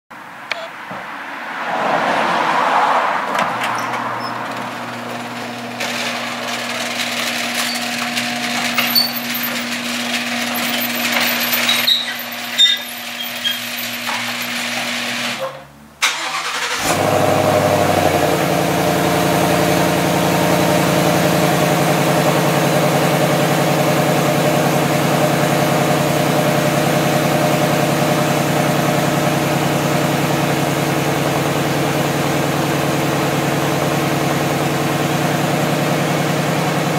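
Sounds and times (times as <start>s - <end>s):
car engine starting and idling: 1.8s - 36.9s
garage door opener humming: 3.6s - 15.6s.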